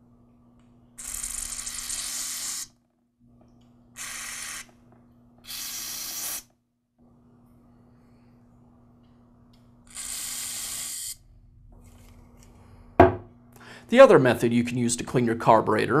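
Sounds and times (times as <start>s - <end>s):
aerosol spray hissing: 1.0s - 2.7s, 4.0s - 4.7s, 5.4s - 6.5s, 9.9s - 11.2s.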